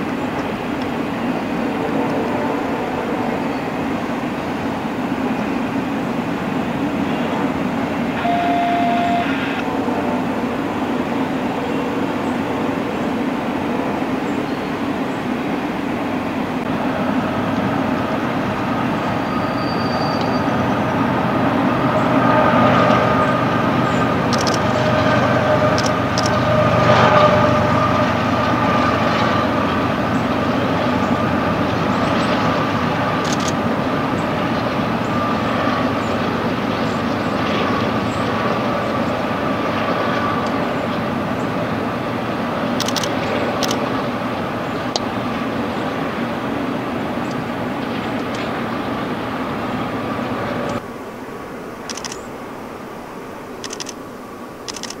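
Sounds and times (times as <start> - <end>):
freight train rumble: 0.0 - 55.0
high ringing tone: 8.2 - 9.7
sharp clicks: 24.3 - 24.7, 25.8 - 26.4, 33.2 - 33.6, 42.8 - 43.8, 51.9 - 52.3, 53.6 - 54.0, 54.7 - 55.0.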